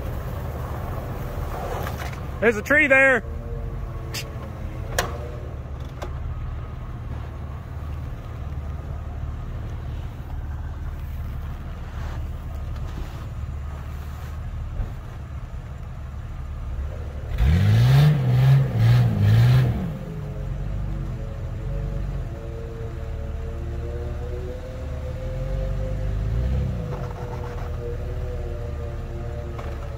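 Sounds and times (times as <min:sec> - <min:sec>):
tyres spinning in snow: 0:00.0 - 0:03.2, 0:06.2 - 0:19.8
engine idling and revving: 0:00.0 - 0:29.9.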